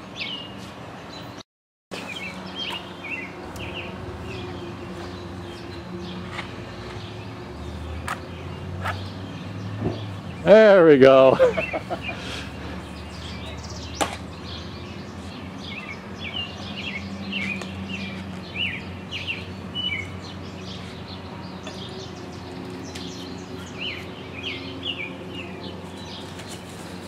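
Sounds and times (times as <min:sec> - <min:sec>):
small birds chirping: 0:02.0 - 0:27.0.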